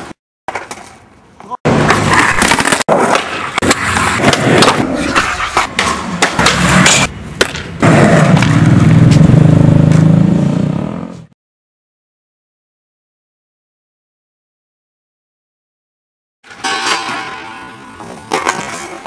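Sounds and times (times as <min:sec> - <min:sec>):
skateboard clacks and impacts: 0:01.7 - 0:08.6, 0:18.0 - 0:19.0
skateboard wheels rumbling: 0:01.7 - 0:11.2.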